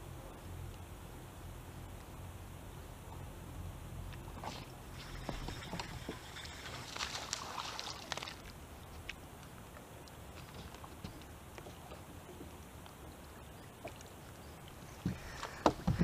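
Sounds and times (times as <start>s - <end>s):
fish splashing at water surface: 5.0s - 8.5s.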